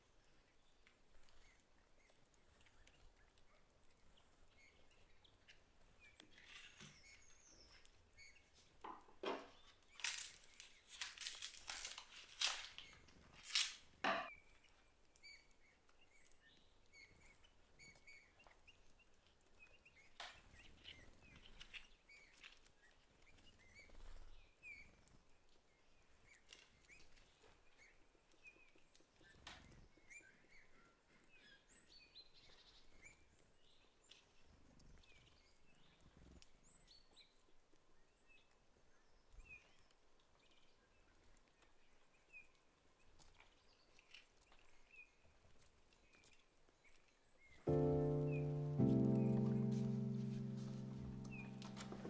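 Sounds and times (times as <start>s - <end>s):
paper wrapping crackling: 10.0s - 13.8s, 47.7s - 52.0s.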